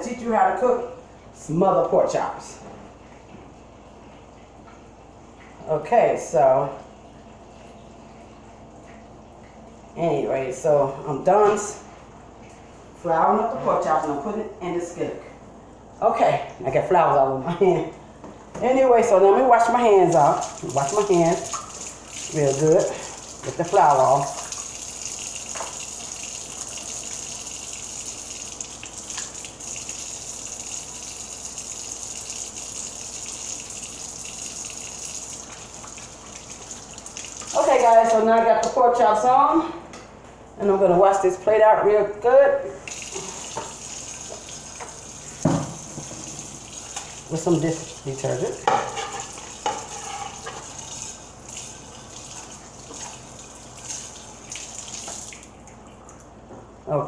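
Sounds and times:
kitchen faucet running: 18.7s - 39.3s, 42.8s - 55.8s.

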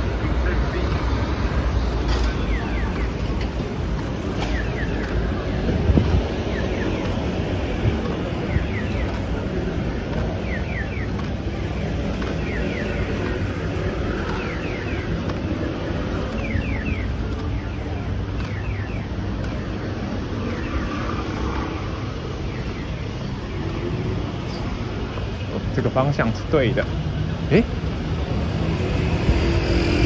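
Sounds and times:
vehicle rumble: 0.0s - 30.0s.

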